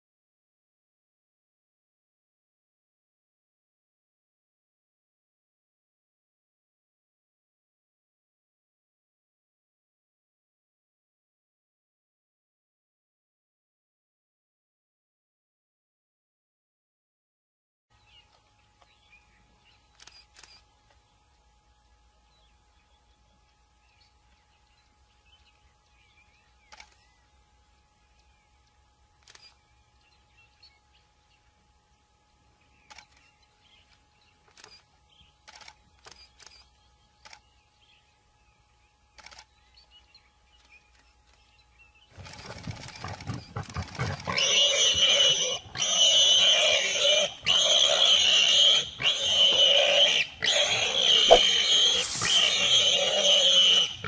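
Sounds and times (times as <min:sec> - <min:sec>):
big cat growling: 0:50.5 - 0:53.4.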